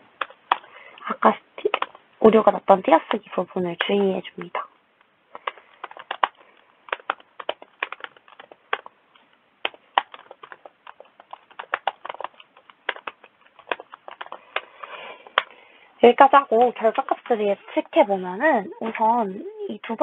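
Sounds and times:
typing on computer keyboard: 0:05.3 - 0:15.5.

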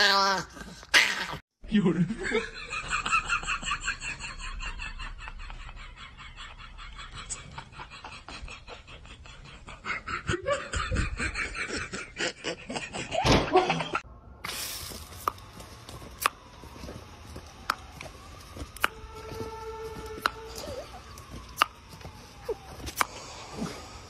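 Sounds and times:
person laughing: 0:02.0 - 0:14.0.

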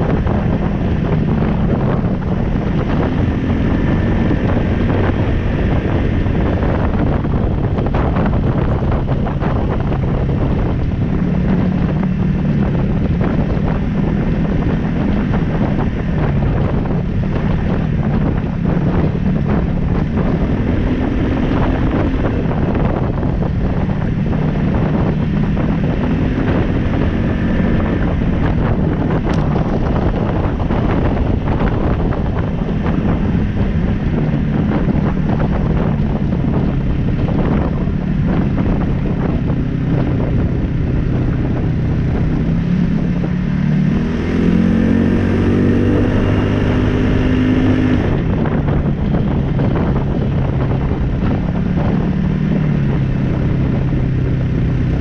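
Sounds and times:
engine running: 0:00.0 - 0:55.0
wind on microphone: 0:00.0 - 0:55.0.

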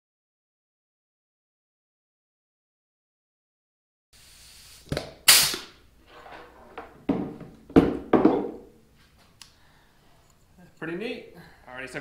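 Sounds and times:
pneumatic rivet squeezer strokes: 0:04.2 - 0:05.8.

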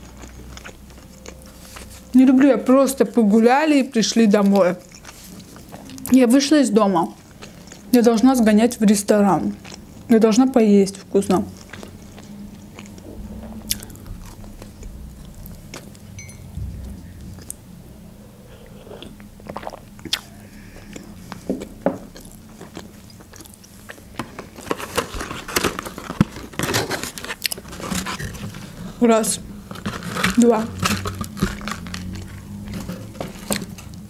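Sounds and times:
chewing food with mouth clicks: 0:00.0 - 0:02.2, 0:04.4 - 0:06.2, 0:09.4 - 0:10.1, 0:11.0 - 0:16.4, 0:18.6 - 0:24.6.

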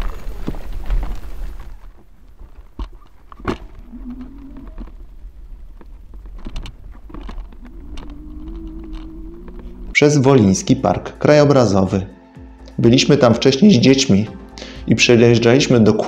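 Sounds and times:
low rumble: 0:00.0 - 0:11.2
bison calling: 0:03.5 - 0:05.4, 0:07.0 - 0:10.6.

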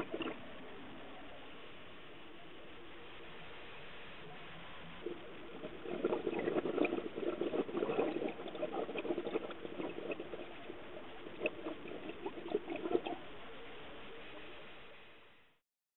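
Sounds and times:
air bubbles underwater: 0:00.0 - 0:00.6, 0:04.3 - 0:13.4
steady hiss: 0:00.0 - 0:15.6.

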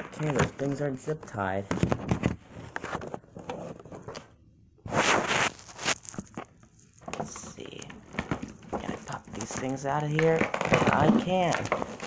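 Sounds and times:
plastic packaging crackling: 0:04.9 - 0:12.0.

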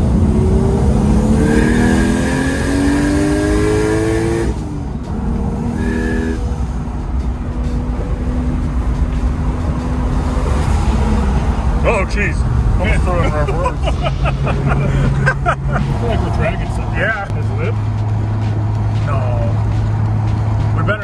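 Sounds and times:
car engine accelerating: 0:00.0 - 0:21.0
turbo whistle: 0:01.4 - 0:02.2, 0:05.8 - 0:06.4.

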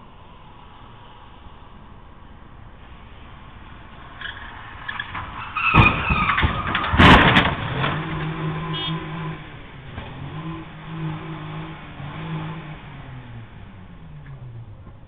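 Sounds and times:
car engine revving unevenly: 0:00.0 - 0:15.0
car crash impacts: 0:04.1 - 0:10.3
tyres squealing: 0:04.2 - 0:09.1.

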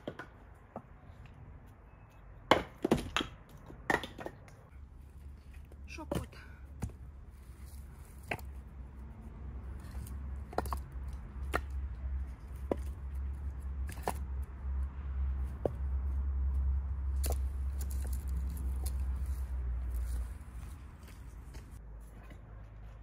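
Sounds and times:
firewood logs knocking together: 0:00.0 - 0:01.0, 0:02.5 - 0:04.6, 0:05.4 - 0:08.6, 0:09.8 - 0:14.5, 0:17.1 - 0:19.2.

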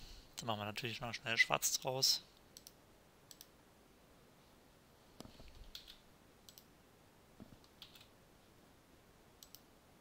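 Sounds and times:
computer mouse clicks: 0:02.6 - 0:03.5, 0:05.2 - 0:06.7, 0:07.4 - 0:08.1, 0:09.4 - 0:09.7.

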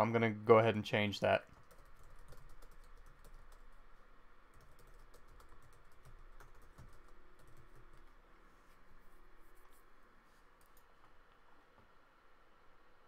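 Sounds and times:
faint keyboard typing: 0:01.5 - 0:08.2, 0:09.4 - 0:11.9.

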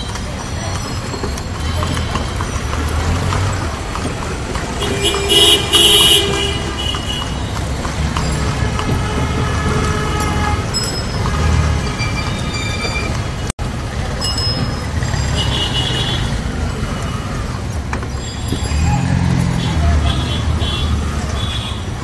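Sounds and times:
city traffic engines: 0:00.0 - 0:22.0
loud vehicle horn blasts: 0:04.8 - 0:07.6, 0:08.4 - 0:10.8.

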